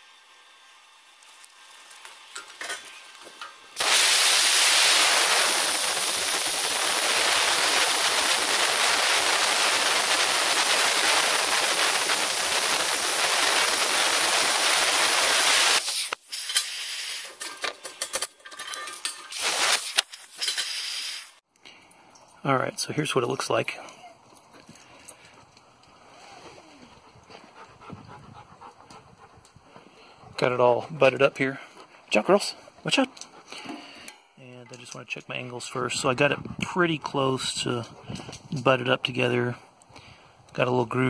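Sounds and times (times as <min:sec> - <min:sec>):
plasma cutter hissing: 0:03.7 - 0:17.4, 0:19.3 - 0:21.4.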